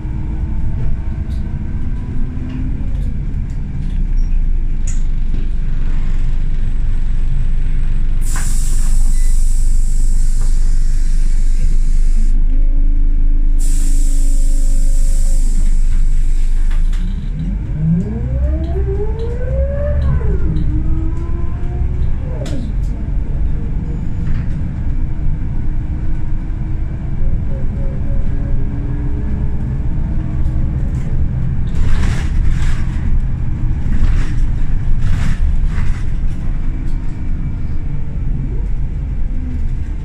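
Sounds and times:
bus diesel engine: 0.0 - 40.0
loud steady hiss: 13.6 - 16.6.

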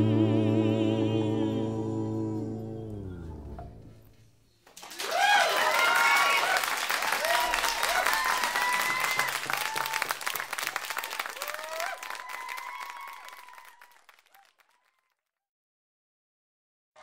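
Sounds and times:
audience applauding and cheering: 4.8 - 15.2.

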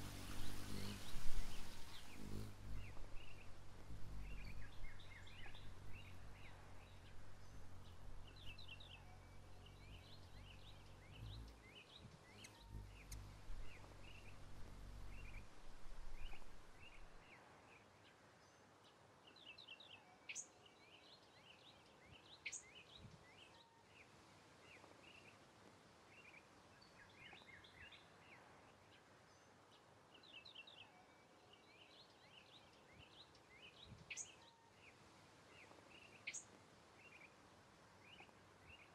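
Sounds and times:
low rumble: 0.0 - 11.6, 12.5 - 17.2
short bird chirps: 0.0 - 17.2.

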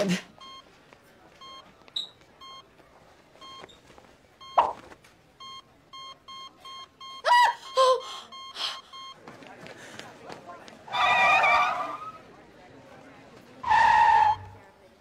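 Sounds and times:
heart monitor beeping: 0.4 - 2.8, 3.4 - 9.3.

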